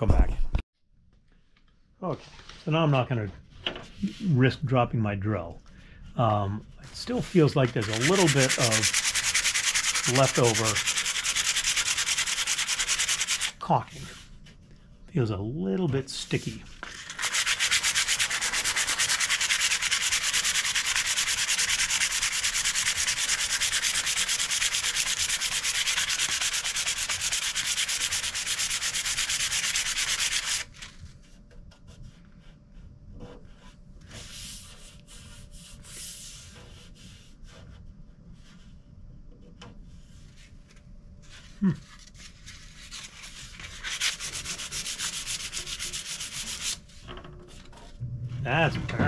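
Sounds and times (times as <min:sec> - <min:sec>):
sandpaper rubbing: 0:06.8 - 0:14.2, 0:16.3 - 0:30.8, 0:41.2 - 0:46.8.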